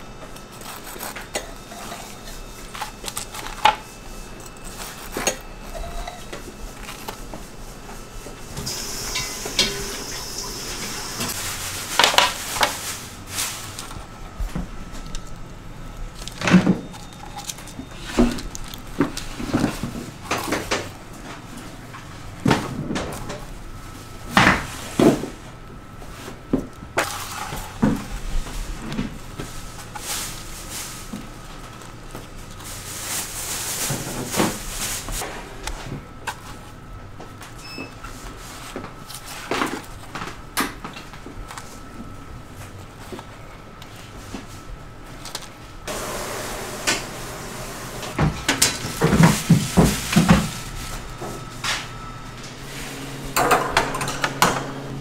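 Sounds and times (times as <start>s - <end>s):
kitchen utensils clattering: 8.6s - 12.8s, 53.2s - 55.0s.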